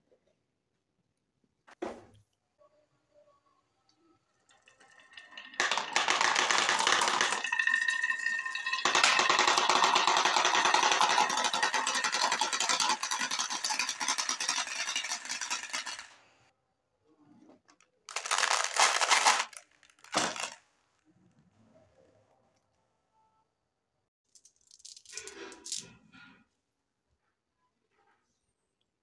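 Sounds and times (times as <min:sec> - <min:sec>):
marbles clattering: 0:05.2 - 0:16.2, 0:18.1 - 0:20.6.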